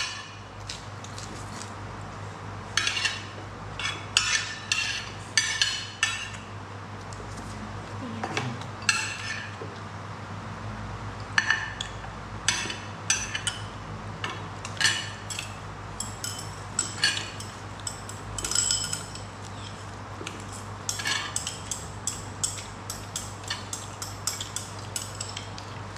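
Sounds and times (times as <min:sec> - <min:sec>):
utensils clinking on dishes: 0:02.8 - 0:06.4, 0:08.8 - 0:09.6, 0:11.4 - 0:25.8.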